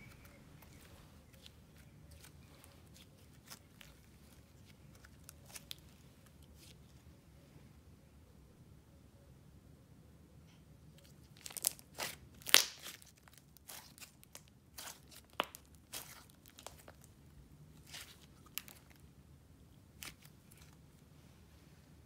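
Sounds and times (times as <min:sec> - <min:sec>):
slime crackling and popping: 0:11.4 - 0:17.1, 0:17.8 - 0:19.0.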